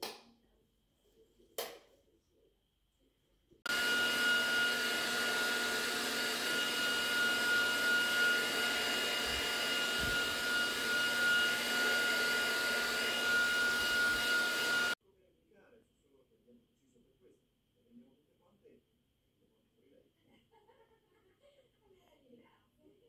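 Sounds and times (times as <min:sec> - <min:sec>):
hair dryer running: 0:03.7 - 0:15.0.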